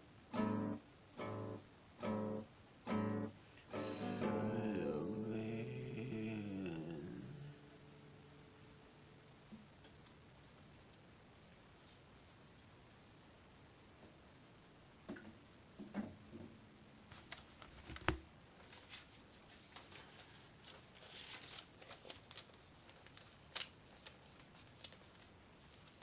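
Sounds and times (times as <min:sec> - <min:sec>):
thin sheet rustling: 0:18.6 - 0:26.0.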